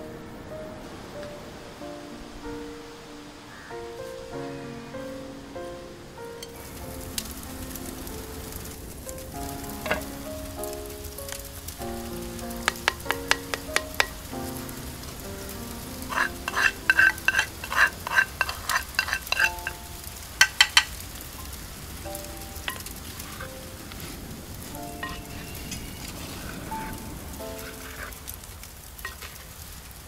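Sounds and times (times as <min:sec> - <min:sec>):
soft background music: 0:00.0 - 0:28.5
ladle clinking in clay pot: 0:16.1 - 0:19.8, 0:20.4 - 0:20.9.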